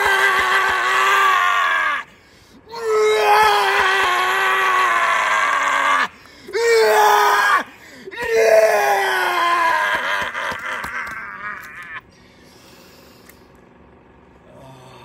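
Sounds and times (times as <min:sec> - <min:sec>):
man screaming: 0:00.0 - 0:02.1, 0:02.7 - 0:12.0.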